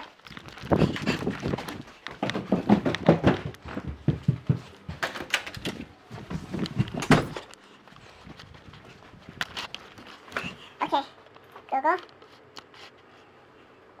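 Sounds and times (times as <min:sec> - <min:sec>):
footsteps on carpeted stairs: 0:00.3 - 0:12.9.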